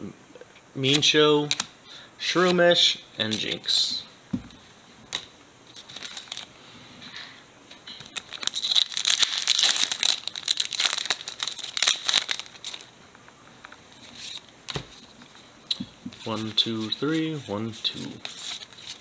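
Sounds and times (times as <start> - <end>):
foil wrapper crinkling and tearing: 5.7 - 6.5, 8.1 - 12.9.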